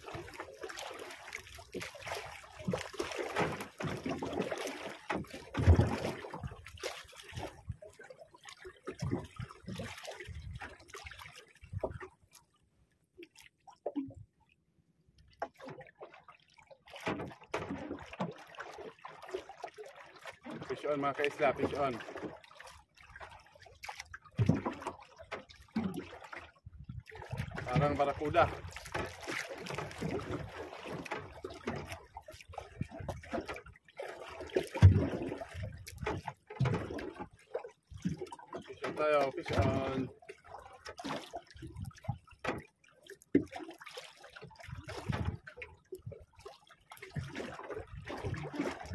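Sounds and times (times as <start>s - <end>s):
seawater splashing around boat: 0.0s - 14.2s, 15.4s - 48.9s
knocks on boat: 17.0s - 17.9s, 34.8s - 37.1s.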